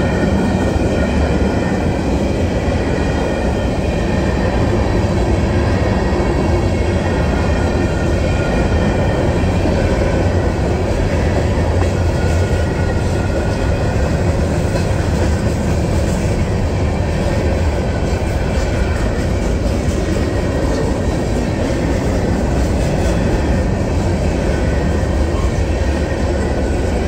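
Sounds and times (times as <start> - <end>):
freight train wheels rumbling on rails: 0.0 - 27.0.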